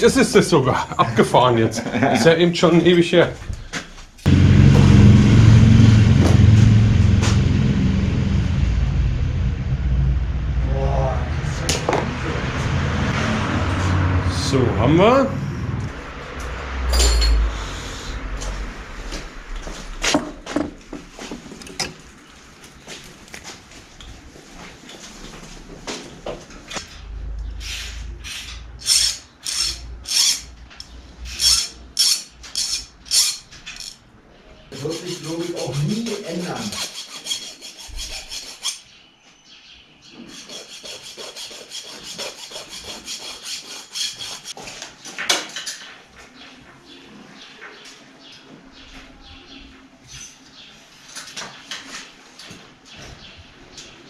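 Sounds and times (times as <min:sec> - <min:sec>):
low engine-like rumble: 0:04.3 - 0:21.2, 0:25.0 - 0:28.8
hand file scraping: 0:27.6 - 0:30.5, 0:31.3 - 0:33.4, 0:34.7 - 0:38.8, 0:40.2 - 0:44.6.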